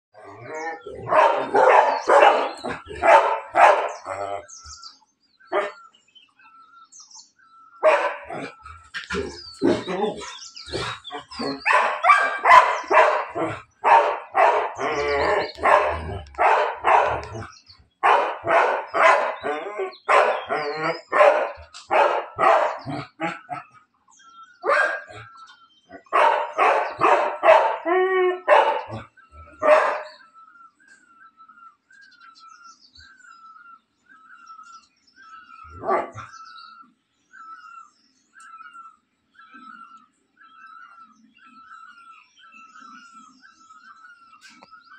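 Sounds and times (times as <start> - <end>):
dogs barking: 0.2 - 4.6, 5.5 - 5.8, 7.8 - 23.7, 24.6 - 30.3, 35.5 - 36.4.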